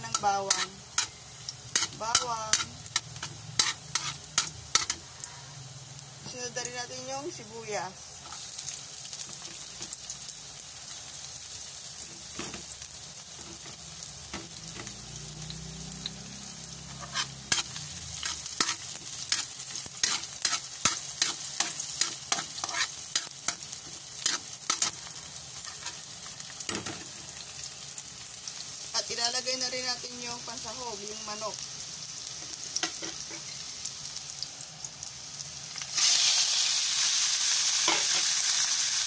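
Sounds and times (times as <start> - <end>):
onion sizzling in hot oil: 0.0 - 39.0
metal ladle scraping a wok: 0.1 - 5.1, 16.8 - 26.1.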